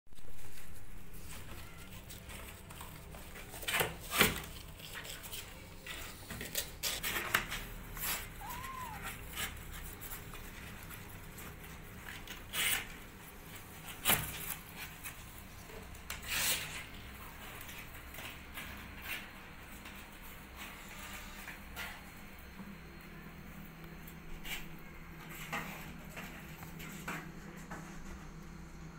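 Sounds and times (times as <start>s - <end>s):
kitten claws scratching cardboard: 1.1s - 15.3s.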